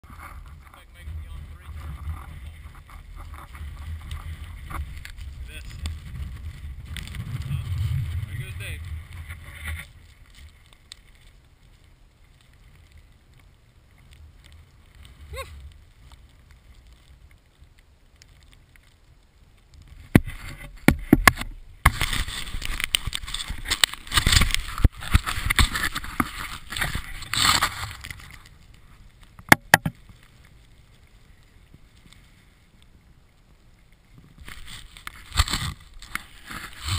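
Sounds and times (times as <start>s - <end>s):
wind on microphone: 0.0s - 10.4s
skis scraping through snow: 0.0s - 29.3s, 33.9s - 36.9s
sharp knocks: 29.5s - 30.0s.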